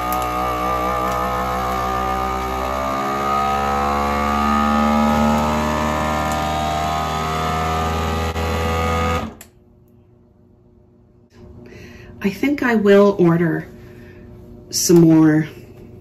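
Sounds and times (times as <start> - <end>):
vacuum sealer pump running: 0.0 - 9.4.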